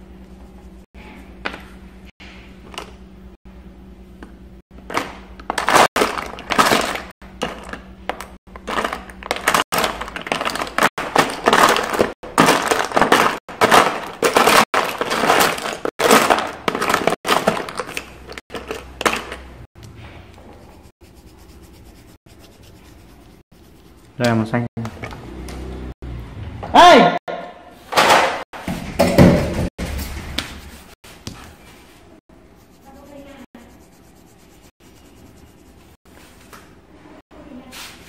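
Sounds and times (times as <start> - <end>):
pencils clattering in a box: 8.6 - 19.4.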